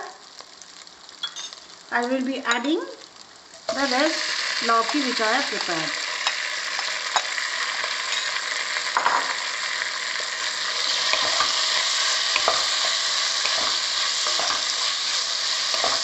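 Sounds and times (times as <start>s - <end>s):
food sizzling in hot oil: 0.0s - 16.0s
spatula stirring and scraping: 10.8s - 16.0s.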